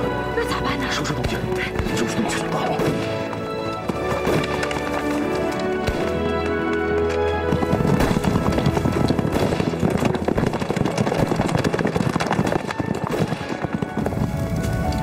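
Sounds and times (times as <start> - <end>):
background music: 0.0 - 15.0
horse hooves clattering: 1.2 - 15.0.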